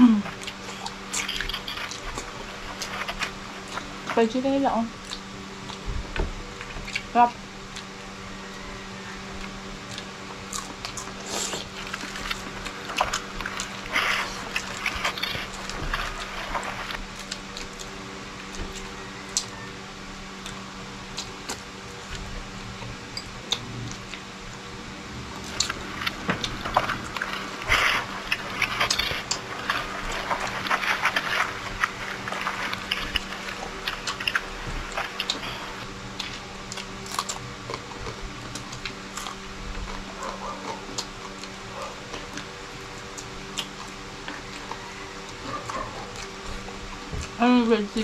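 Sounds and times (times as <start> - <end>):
faint steady hum: 0.0 - 48.0
chewing and tearing meat: 0.3 - 4.2, 4.9 - 24.7, 25.3 - 47.4.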